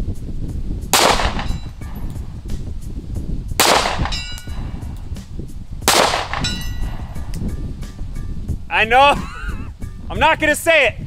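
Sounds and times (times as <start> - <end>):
pistol shots: 1.0 - 1.8, 3.6 - 4.6, 5.8 - 7.3
faint ring of distant steel target: 1.0 - 2.1, 3.6 - 4.9, 5.9 - 7.4.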